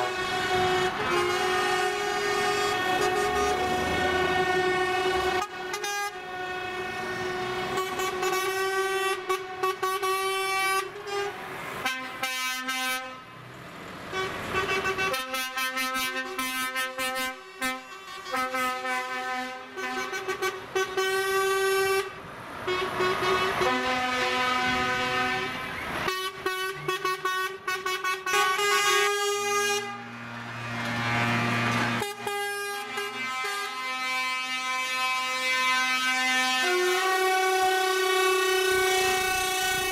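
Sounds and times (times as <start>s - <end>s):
deeper horn blasts: 0.0s - 13.3s, 14.1s - 39.9s
truck air horns: 0.0s - 13.5s, 14.1s - 39.9s.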